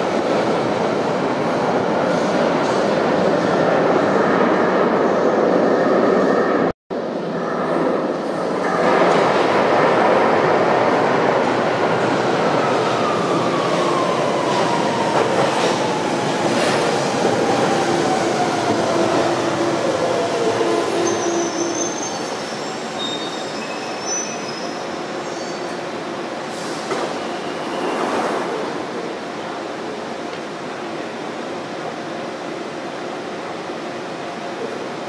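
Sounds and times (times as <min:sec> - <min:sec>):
train wheels rumbling on rail: 0:07.4 - 0:23.7, 0:25.2 - 0:35.0
high brake squeals: 0:21.0 - 0:25.7.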